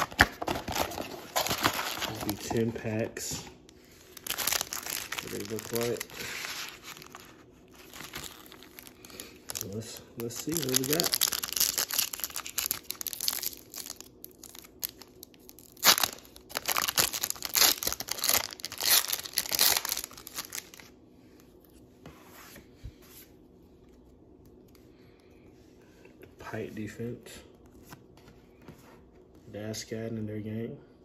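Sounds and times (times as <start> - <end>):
foil pack tearing and crinkling: 0.0 - 2.6, 4.0 - 20.9.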